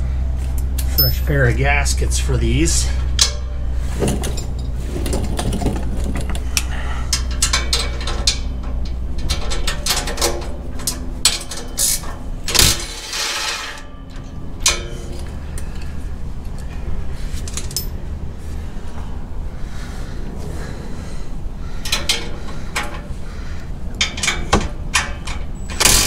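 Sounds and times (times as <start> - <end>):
metallic tool clinks: 0.8 - 1.4.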